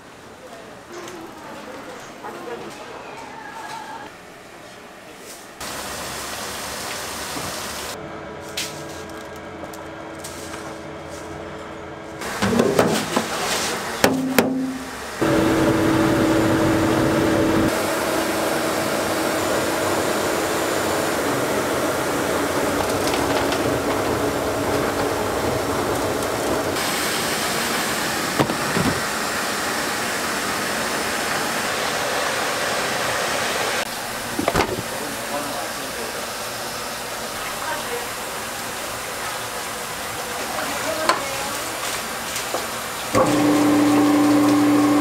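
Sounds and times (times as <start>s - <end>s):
machine humming: 10.8s - 40.3s, 43.1s - 45.0s
knocks: 14.0s - 14.8s
held tone: 14.1s - 16.6s.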